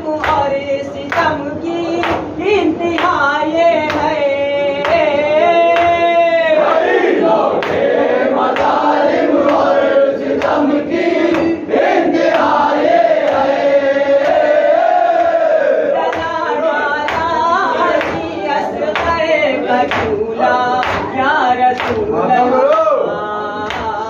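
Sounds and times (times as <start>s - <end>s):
men chanting together: 4.8s - 23.4s.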